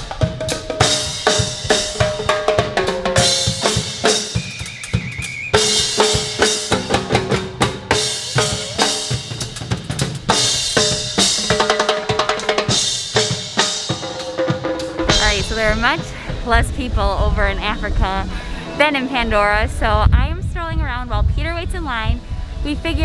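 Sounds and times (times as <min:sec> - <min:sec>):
drum kit beat: 0:00.0 - 0:18.2.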